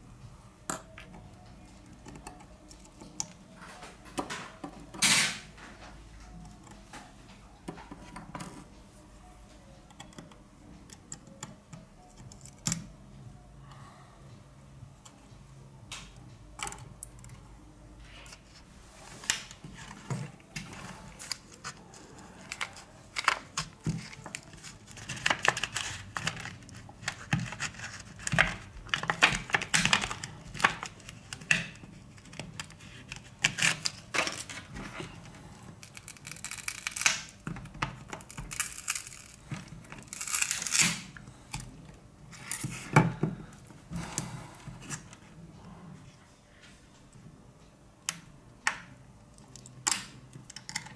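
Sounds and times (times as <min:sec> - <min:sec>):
tools clicking and tapping: 0:15.9 - 0:17.4
plastic film crinkling and tearing: 0:21.1 - 0:41.2.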